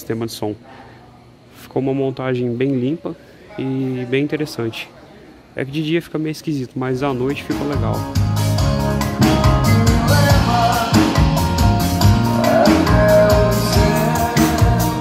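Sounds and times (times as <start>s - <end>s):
live band playing: 7.1s - 15.0s
drum kit beating: 7.3s - 15.0s
bass guitar: 7.4s - 15.0s
electric guitar: 7.5s - 15.0s
man singing: 9.2s - 15.0s.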